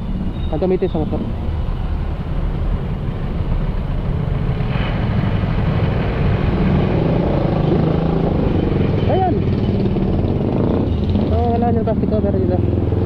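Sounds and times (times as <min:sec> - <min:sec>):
vehicle engine running: 0:00.0 - 0:13.0.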